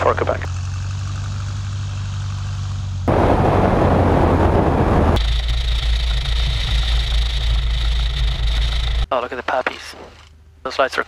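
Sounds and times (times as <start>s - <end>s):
aircraft engine hum: 0.0s - 11.0s
loud rushing noise: 3.1s - 5.3s.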